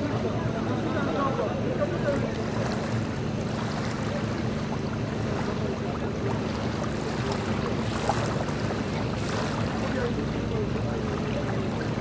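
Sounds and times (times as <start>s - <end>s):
engine running at low revs: 0.0s - 12.0s.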